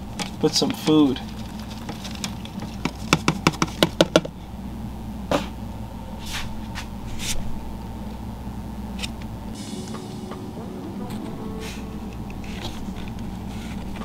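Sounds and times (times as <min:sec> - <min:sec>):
rapid taps on plastic cup: 0:01.3 - 0:04.3
soft brushing: 0:06.2 - 0:07.6, 0:11.2 - 0:14.0.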